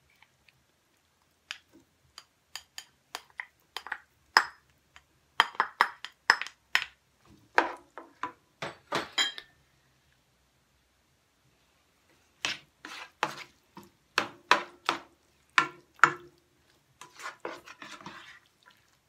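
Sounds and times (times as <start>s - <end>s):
spatula scraping ceramic bowl: 12.4s - 13.6s, 17.0s - 18.8s.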